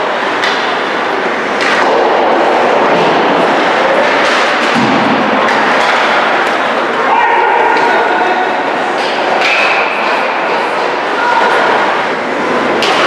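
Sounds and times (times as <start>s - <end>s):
ice rink noise: 0.0s - 13.0s
hockey sticks and puck knocking: 0.2s - 6.9s.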